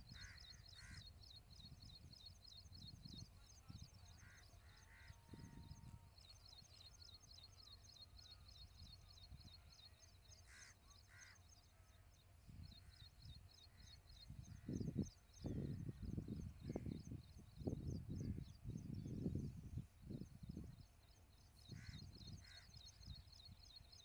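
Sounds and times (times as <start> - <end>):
wind gusts on microphone: 14.3 - 20.8.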